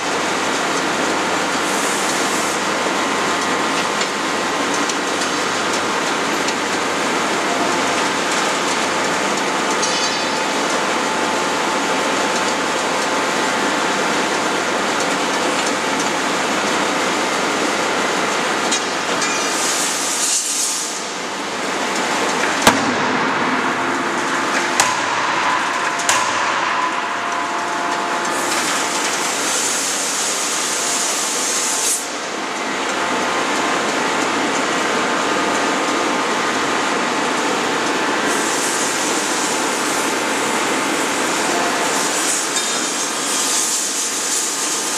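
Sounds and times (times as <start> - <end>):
machinery din: 22.5 - 29.6.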